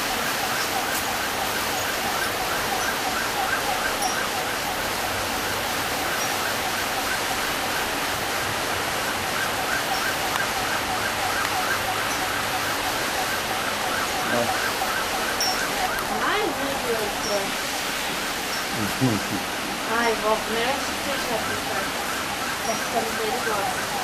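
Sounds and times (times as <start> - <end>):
siren wailing: 0.0 - 17.6, 19.9 - 24.0
heavy rain pouring: 0.0 - 24.0.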